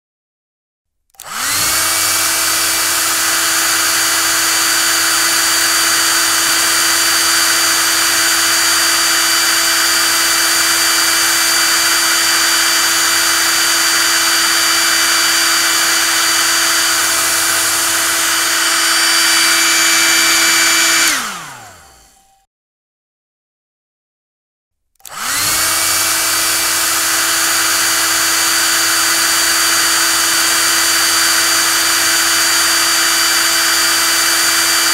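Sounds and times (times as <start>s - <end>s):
hair dryer switch click: 1.1s - 2.1s, 25.0s - 26.0s
hair dryer running: 1.1s - 22.4s, 25.0s - 34.9s.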